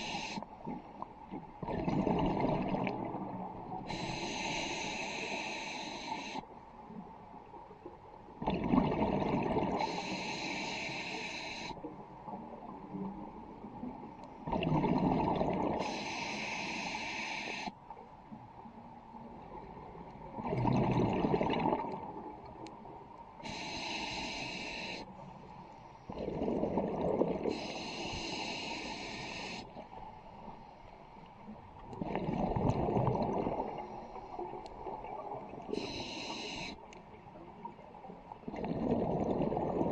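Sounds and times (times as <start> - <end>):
diver inhaling through regulator: 0.0 - 0.5, 3.9 - 6.4, 9.7 - 11.8, 15.8 - 17.8, 23.4 - 25.1, 27.4 - 29.8, 35.7 - 36.8
bubbling exhaled air: 32.0 - 33.9, 38.5 - 39.9.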